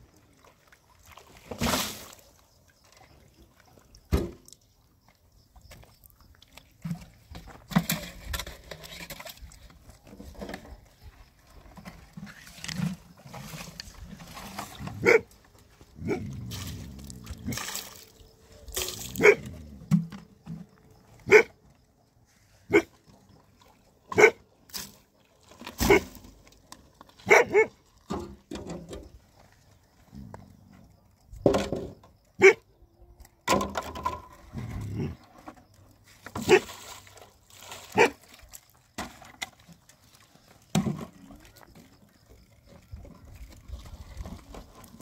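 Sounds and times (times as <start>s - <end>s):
dog barking: 15.0s - 15.3s, 19.2s - 19.5s, 21.3s - 21.5s, 24.1s - 24.4s, 27.2s - 27.7s, 32.4s - 32.6s, 38.0s - 38.2s.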